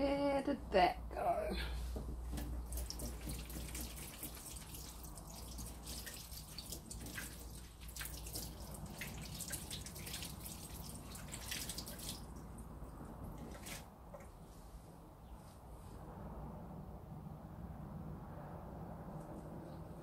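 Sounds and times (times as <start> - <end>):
tap water splashing and dripping: 2.0 - 14.4.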